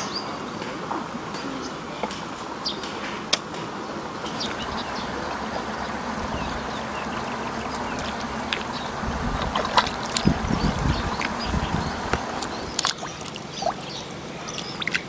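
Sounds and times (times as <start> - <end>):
mud squelching and sloshing: 4.4 - 15.0.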